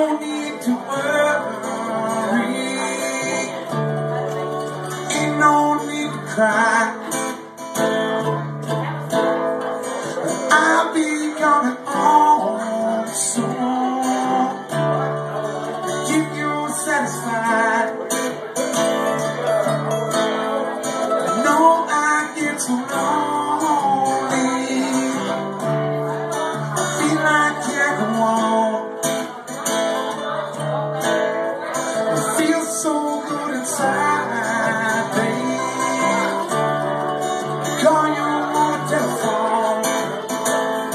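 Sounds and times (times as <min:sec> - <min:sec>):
acoustic guitar strumming: 0:00.0 - 0:40.9
mandolin picking: 0:00.0 - 0:40.9.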